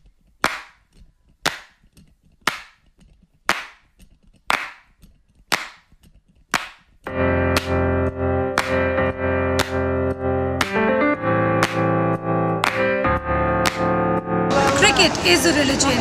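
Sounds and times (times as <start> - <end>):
sharp snapping hits: 0.4 - 0.8, 1.4 - 2.9, 5.5 - 5.9, 9.6 - 9.9, 11.6 - 11.9, 12.6 - 13.0, 13.6 - 14.0
music with guitar: 7.1 - 15.2.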